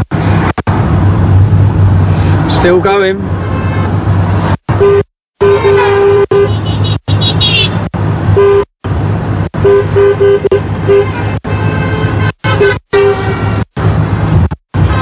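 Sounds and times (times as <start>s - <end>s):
car engine hum: 0.0s - 15.0s
car horn tooting: 4.8s - 8.7s, 9.6s - 13.6s, 14.8s - 15.0s.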